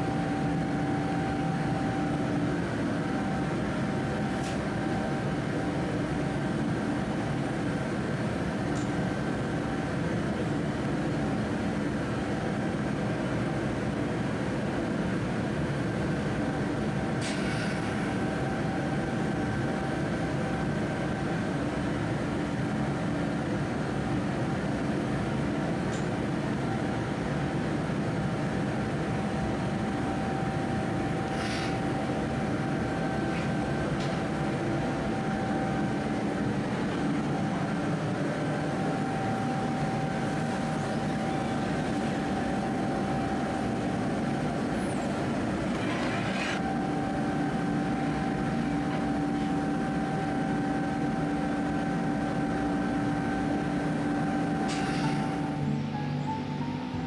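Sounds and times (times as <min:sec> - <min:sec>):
constant hum: 0:00.0 - 0:57.0
gas furnace roaring: 0:00.0 - 0:57.0.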